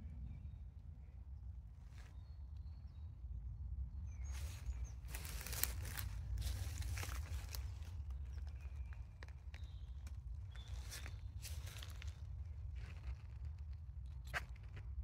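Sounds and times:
low wind rumble: 0:00.0 - 0:15.0
faint bird chirps: 0:04.0 - 0:12.2
footsteps crunching dry ground: 0:04.2 - 0:14.9.

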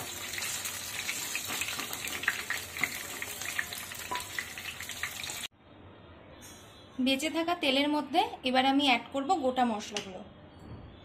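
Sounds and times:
fish frying in hot oil: 0:00.0 - 0:05.5.

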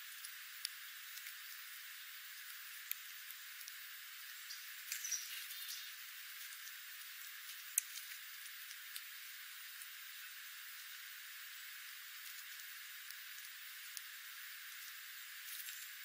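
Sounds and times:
birds pecking and hopping: 0:00.0 - 0:16.0
steady hiss: 0:00.0 - 0:16.0
faint bird chirp: 0:04.3 - 0:06.1.

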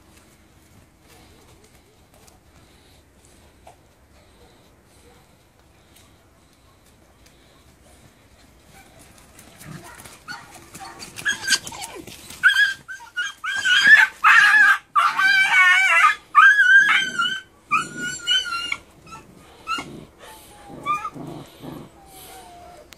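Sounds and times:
puppies yelping and squealing: 0:10.3 - 0:22.9.

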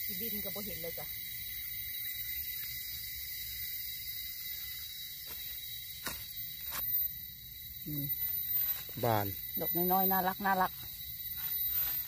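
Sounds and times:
high-pitched insect drone: 0:00.0 - 0:12.0
crunch on dry leaves: 0:10.9 - 0:12.0.

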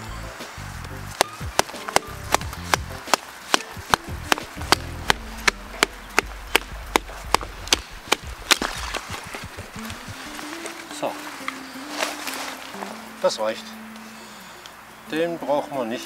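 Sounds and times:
wooden baton striking blade: 0:01.2 - 0:10.2.

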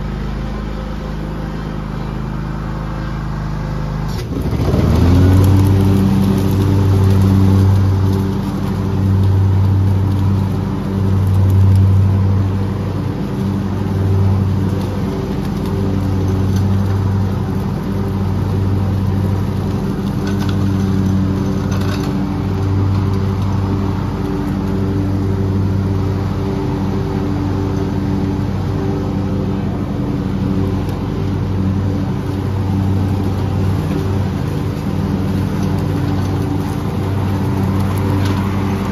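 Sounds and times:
small gasoline engine running: 0:00.0 - 0:38.9.

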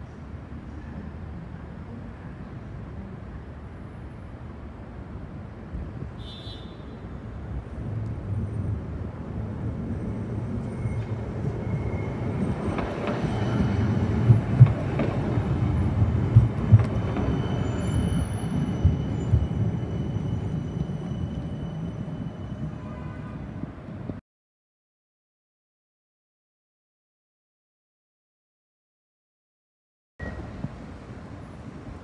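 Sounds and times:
tram rumbling past: 0:07.1 - 0:24.2
sharp knocks from tram wheels: 0:14.1 - 0:17.4.

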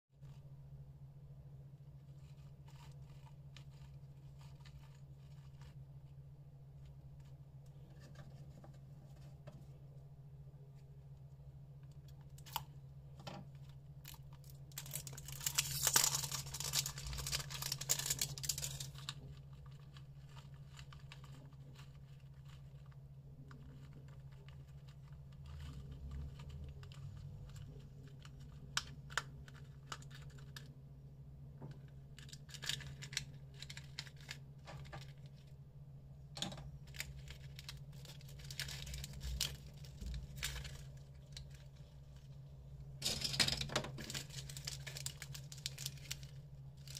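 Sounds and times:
plastic wrap tearing and crinkling: 0:13.6 - 0:30.7, 0:36.8 - 0:42.4, 0:43.0 - 0:46.9
cellophane packets crinkling: 0:14.0 - 0:30.7, 0:32.2 - 0:35.5, 0:36.8 - 0:42.4, 0:43.0 - 0:46.9.

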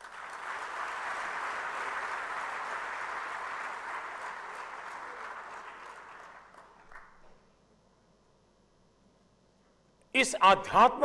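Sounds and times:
audience applause: 0:00.0 - 0:07.3.

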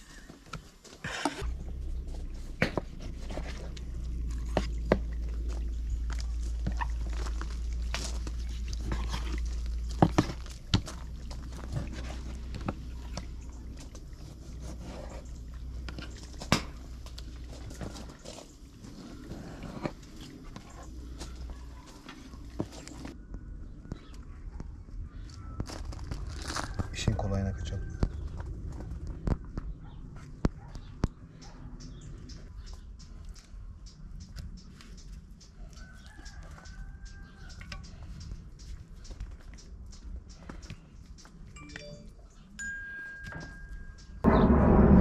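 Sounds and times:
low rumble: 0:44.1 - 0:45.0.

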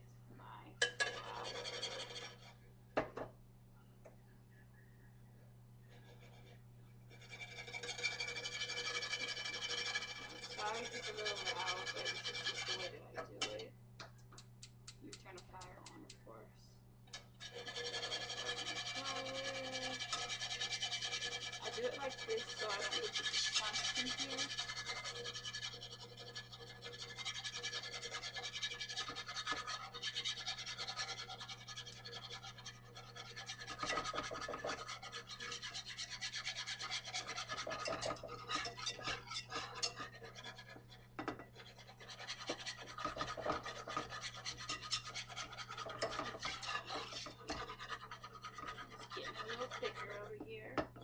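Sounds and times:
whisk scraping metal skillet: 0:00.8 - 0:02.6, 0:05.9 - 0:13.6, 0:17.1 - 0:51.0
low hum: 0:02.5 - 0:07.8.

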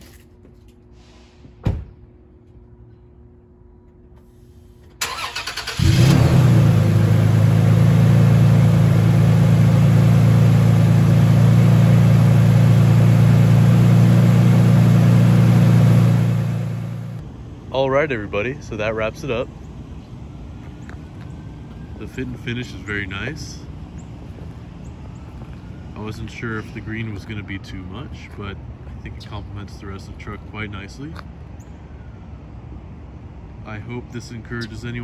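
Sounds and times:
thump: 0:01.4 - 0:02.0.

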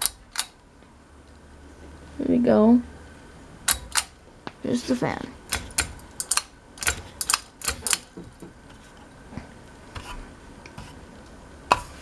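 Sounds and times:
pull-chain switch clicking: 0:00.0 - 0:00.6, 0:05.5 - 0:08.1.

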